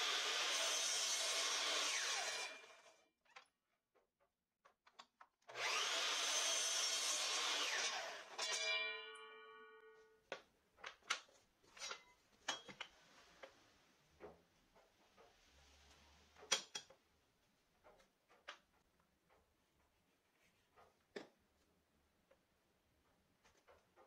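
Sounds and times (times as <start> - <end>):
power saw cutting wood: 0.0 - 3.0, 5.5 - 8.7
saw winding down hum: 5.5 - 8.3.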